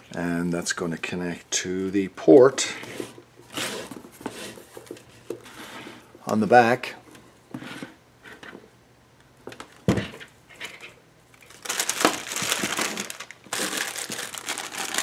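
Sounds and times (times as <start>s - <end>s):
plastic bag crinkling: 11.4s - 15.0s.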